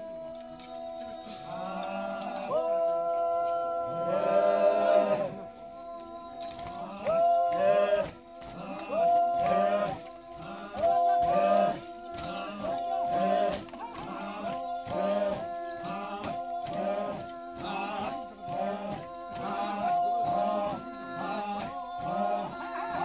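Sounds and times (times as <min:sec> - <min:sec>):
steady beat: 0:06.9 - 0:23.0.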